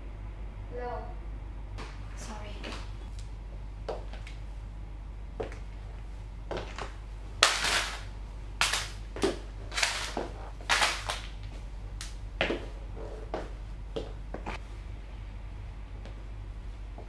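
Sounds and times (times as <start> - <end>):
crackers crunching underfoot: 5.4 - 14.6
wrappers crinkling: 6.6 - 11.6.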